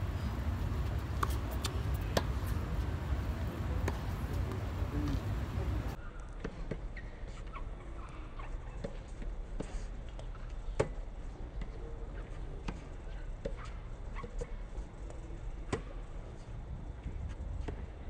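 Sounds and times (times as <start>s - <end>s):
tennis balls bouncing on hard court: 0.0s - 5.9s
steady low rumble: 0.0s - 6.0s
tennis balls struck with rackets: 0.0s - 6.8s.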